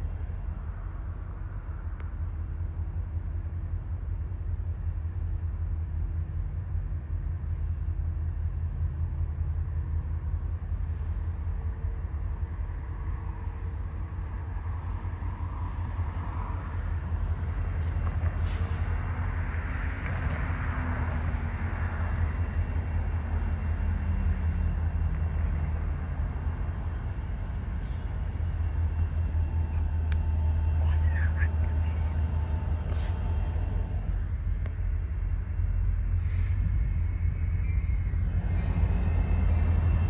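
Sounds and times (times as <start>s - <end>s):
diesel locomotive rumble: 0.0s - 40.0s
faint falling drone: 13.3s - 40.0s
thin high whine: 26.9s - 40.0s.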